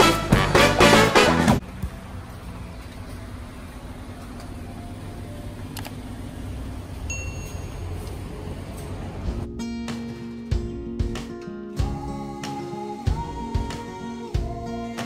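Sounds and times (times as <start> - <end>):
street ambience rumble: 0.0 - 11.2
short electronic door chime: 7.1 - 7.9.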